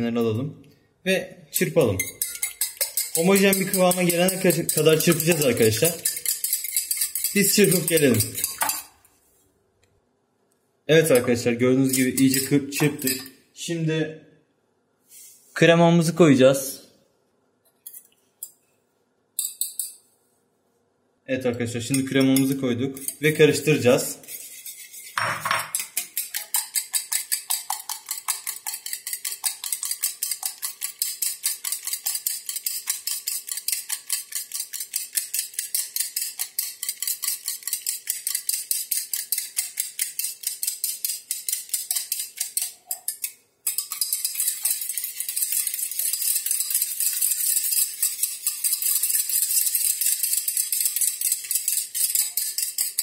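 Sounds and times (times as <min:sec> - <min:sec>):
whisk clinking against metal pot: 0:01.6 - 0:09.0, 0:11.0 - 0:13.4, 0:19.4 - 0:20.0, 0:21.5 - 0:53.0.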